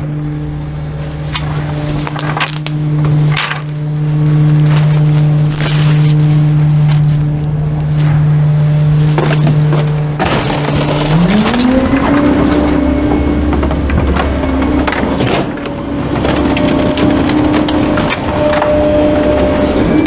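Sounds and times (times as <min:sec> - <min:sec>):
garbage truck engine revving: 0:00.0 - 0:20.0
packer blade compacting load: 0:09.0 - 0:20.0.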